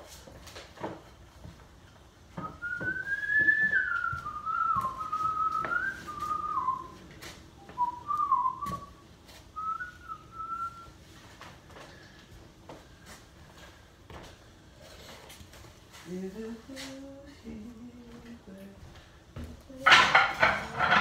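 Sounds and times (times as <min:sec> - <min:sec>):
person whistling a tune: 0:02.4 - 0:07.0, 0:07.6 - 0:09.0, 0:09.6 - 0:10.9.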